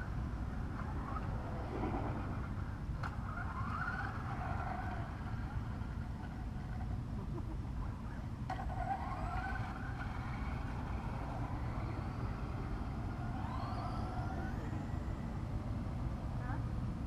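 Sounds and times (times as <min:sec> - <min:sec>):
steady low rumble: 0:00.0 - 0:17.0
remote control car motor whining: 0:03.0 - 0:06.9, 0:08.5 - 0:15.2.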